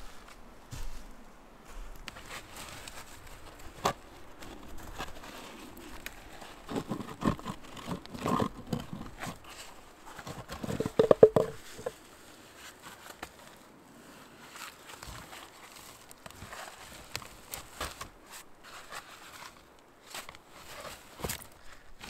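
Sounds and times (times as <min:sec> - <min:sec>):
boots crunching in snow: 0:00.0 - 0:03.7
stone slab scraping: 0:10.5 - 0:11.9.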